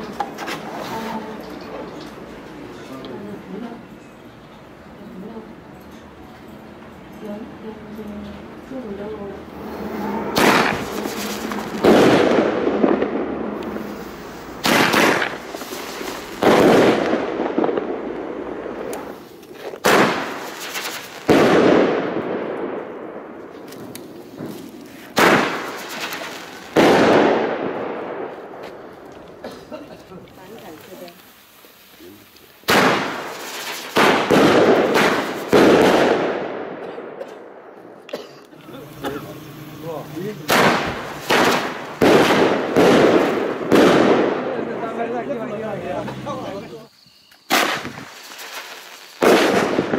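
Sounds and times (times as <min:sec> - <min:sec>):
loud firework bangs with echo: 0:09.5 - 0:29.5, 0:32.6 - 0:37.7, 0:39.8 - 0:45.2, 0:47.5 - 0:49.9
firework launch sound: 0:09.5 - 0:29.7, 0:30.7 - 0:36.8, 0:38.6 - 0:45.0, 0:47.4 - 0:49.9.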